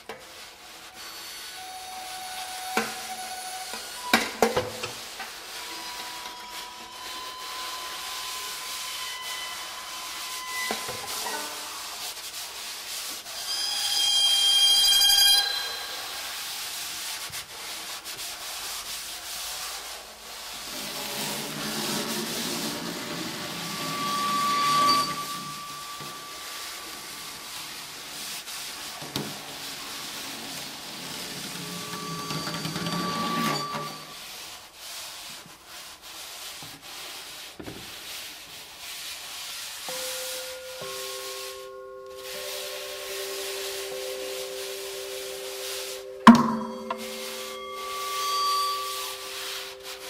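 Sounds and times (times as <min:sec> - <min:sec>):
scratchy scraping on strings: 0:02.8 - 0:16.7, 0:20.7 - 0:28.5, 0:30.0 - 0:34.2, 0:40.8 - 0:50.0
high metallic ringing: 0:13.3 - 0:16.6, 0:23.4 - 0:27.6, 0:39.9 - 0:50.0.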